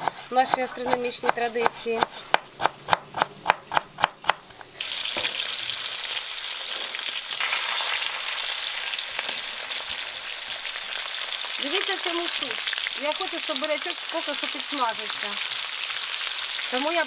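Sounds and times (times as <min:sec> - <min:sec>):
knife chopping on a wooden board: 0:00.0 - 0:04.4
meat sizzling in a pan: 0:04.8 - 0:17.0.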